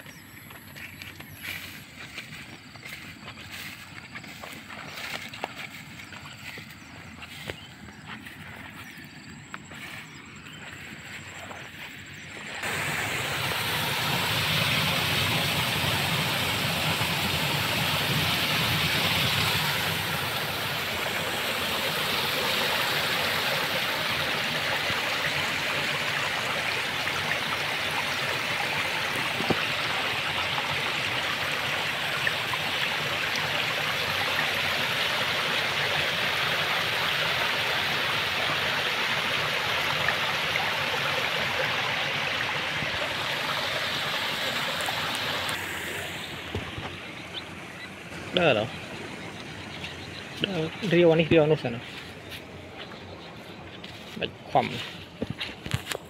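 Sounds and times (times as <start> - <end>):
water rushing through ditch: 0.7 - 8.7, 10.0 - 56.0.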